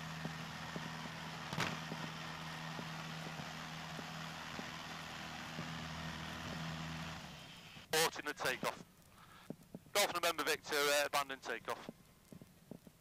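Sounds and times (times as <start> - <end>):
aircraft engine running: 0.0 - 8.8.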